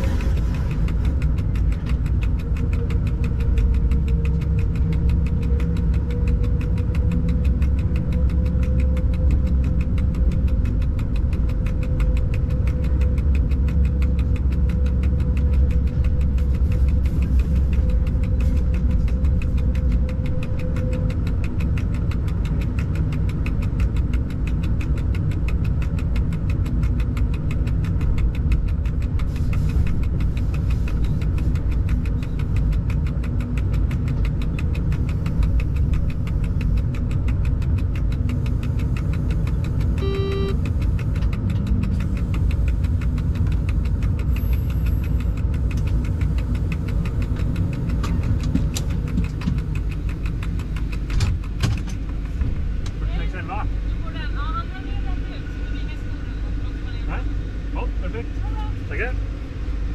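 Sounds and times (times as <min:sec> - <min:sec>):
locomotive machinery rumble: 0:00.0 - 0:59.9
short electronic beep: 0:40.0 - 0:40.6.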